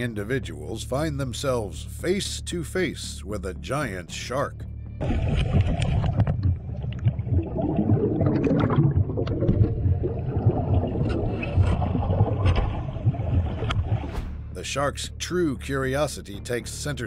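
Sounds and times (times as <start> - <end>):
underwater rumbling and gurgling: 4.8 - 14.5.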